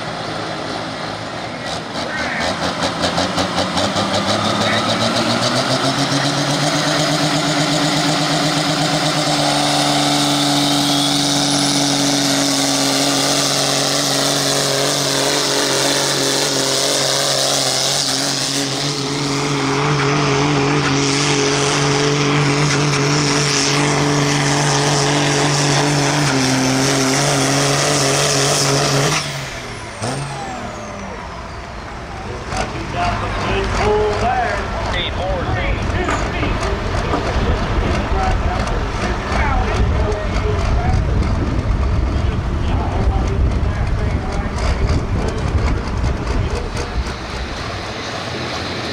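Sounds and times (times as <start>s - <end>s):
tractor diesel engine at full throttle: 0.0s - 48.9s.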